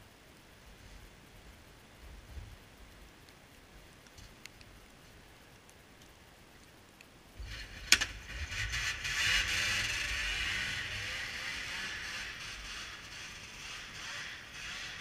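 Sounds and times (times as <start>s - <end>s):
snowmobile engine revving: 7.4s - 15.0s.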